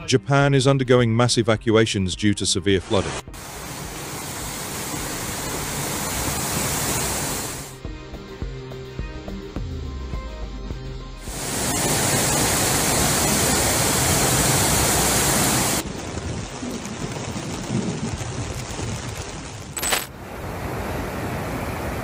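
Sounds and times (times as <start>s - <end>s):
floodwater rushing: 3.4s - 7.8s, 11.3s - 22.0s.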